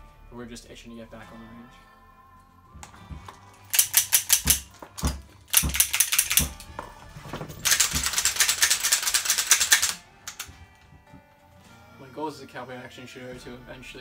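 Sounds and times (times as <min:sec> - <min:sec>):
dull thumps: 0:02.7 - 0:03.4
revolver hammers clicking: 0:02.8 - 0:06.7, 0:07.6 - 0:10.9.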